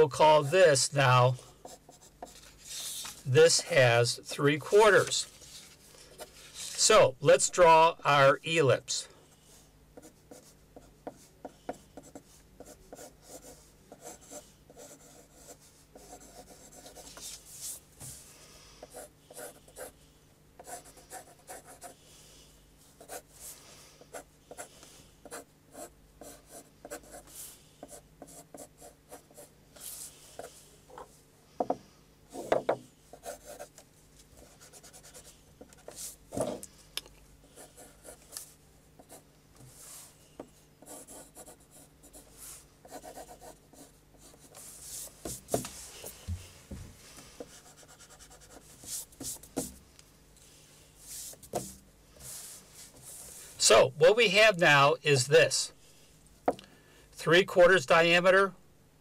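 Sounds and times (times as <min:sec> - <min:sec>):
pencil sketching on paper: 0:10.0 - 0:17.8, 0:18.8 - 0:20.0, 0:20.6 - 0:22.0, 0:23.0 - 0:30.5, 0:33.1 - 0:33.7, 0:34.4 - 0:36.2, 0:37.6 - 0:38.3, 0:40.8 - 0:45.6, 0:47.4 - 0:49.7.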